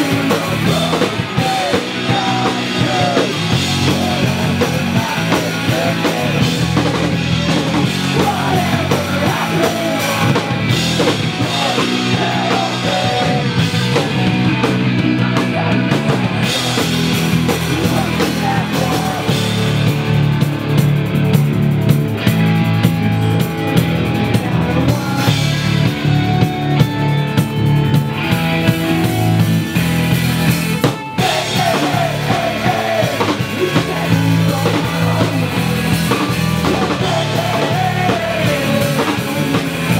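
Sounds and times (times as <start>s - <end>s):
person singing into microphone: 0.0s - 6.6s, 31.2s - 35.6s
distorted guitars and bass: 0.0s - 39.9s
drum kit: 0.0s - 39.9s.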